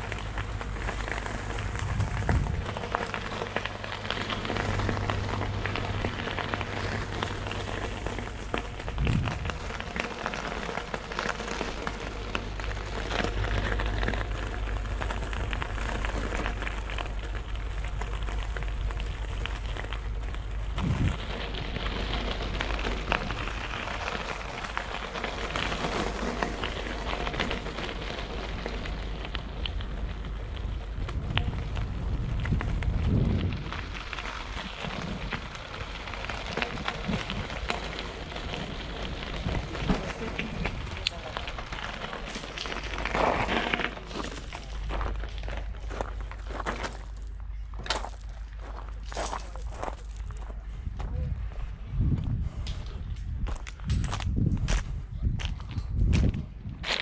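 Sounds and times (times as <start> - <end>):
bike crackling rattle: 0.0 - 50.8
low hum: 0.0 - 56.8.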